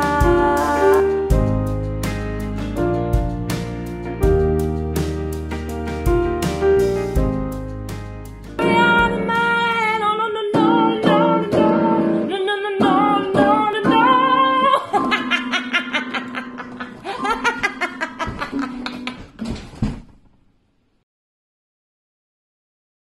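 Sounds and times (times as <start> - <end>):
woman singing: 0.0 - 1.3, 8.6 - 15.8
pop music accompaniment: 0.0 - 16.5.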